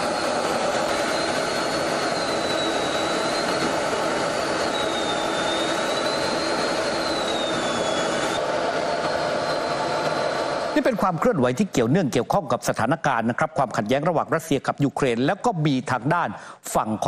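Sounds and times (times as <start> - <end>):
military aircraft engines: 0.0 - 11.3
thin high whine: 0.0 - 15.4.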